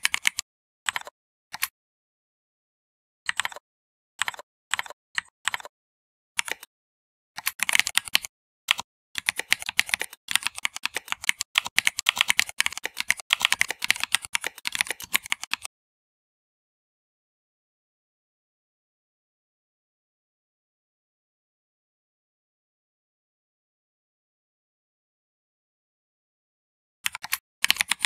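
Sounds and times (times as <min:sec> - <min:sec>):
computer keyboard typing: 0:00.0 - 0:01.7, 0:03.3 - 0:03.6, 0:04.2 - 0:05.7, 0:06.4 - 0:06.7, 0:07.4 - 0:15.7, 0:27.1 - 0:28.0.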